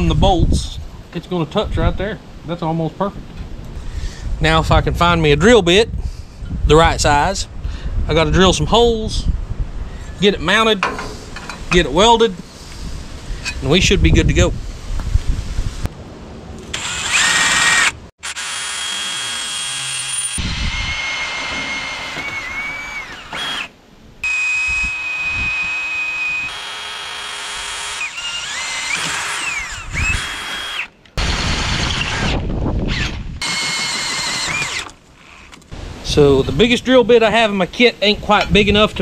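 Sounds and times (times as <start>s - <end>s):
cordless drill boring through steel: 16.7s - 35.5s.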